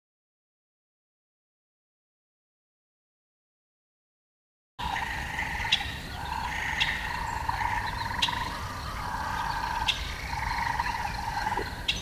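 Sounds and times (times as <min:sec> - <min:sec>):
tree frogs trilling chorus: 0:04.8 - 0:12.0.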